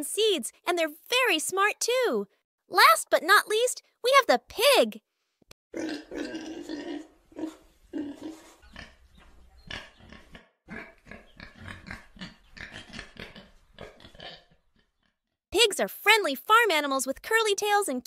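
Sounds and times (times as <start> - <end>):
pig grunting: 5.8 - 15.1.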